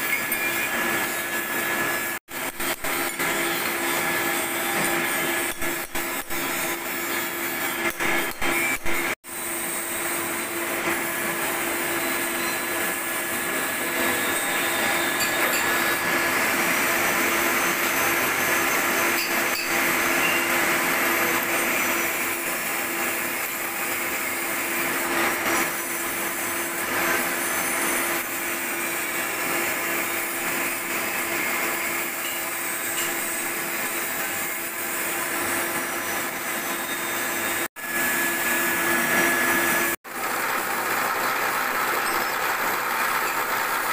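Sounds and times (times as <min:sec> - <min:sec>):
milling machine motor hum: 0:32.8 - 0:43.9.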